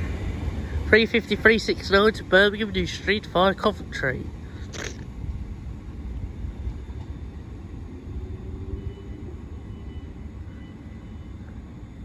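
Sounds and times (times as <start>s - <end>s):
electric train pulling away: 5.2s - 12.0s.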